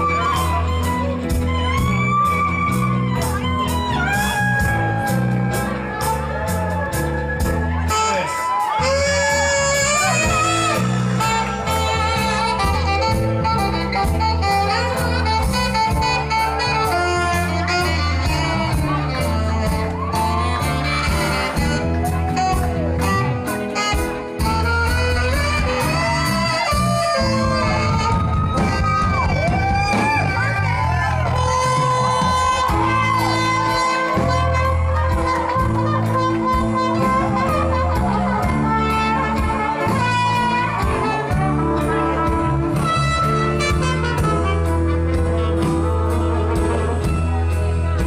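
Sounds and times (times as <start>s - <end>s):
bass line: 0.0s - 48.0s
horns playing melody: 0.0s - 48.0s
drum beat: 1.3s - 17.0s, 23.9s - 41.6s.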